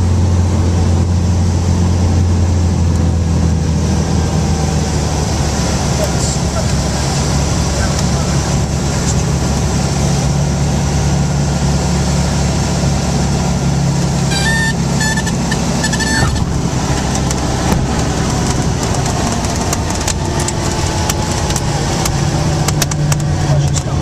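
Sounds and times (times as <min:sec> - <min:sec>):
aircraft engine and propeller droning: 0:00.0 - 0:24.0
stall warning horn: 0:14.2 - 0:16.6.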